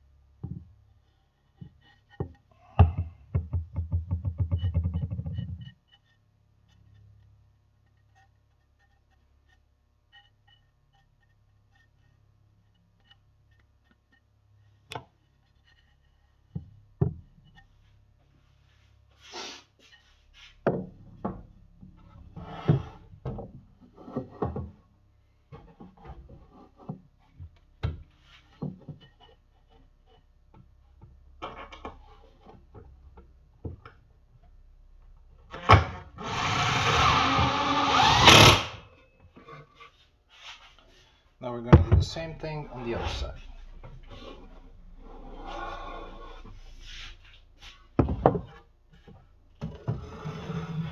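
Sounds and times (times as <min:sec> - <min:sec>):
cordless drill running: 0:36.2 - 0:38.8.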